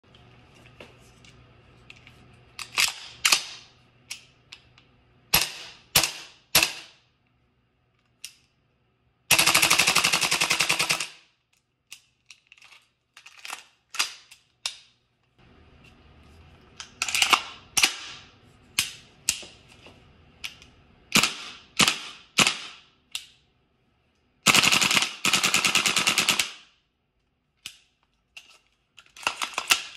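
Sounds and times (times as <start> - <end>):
airsoft rifle full-auto burst: 9.3 - 11.1, 24.4 - 26.6.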